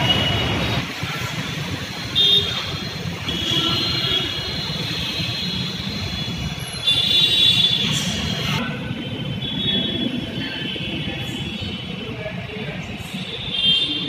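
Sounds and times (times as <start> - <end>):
city traffic rumble: 0.0 - 14.0.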